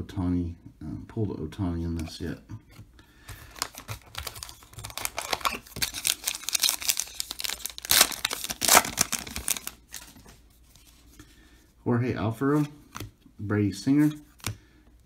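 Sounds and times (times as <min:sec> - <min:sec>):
wrapper crinkling and ripping: 0:03.3 - 0:10.3.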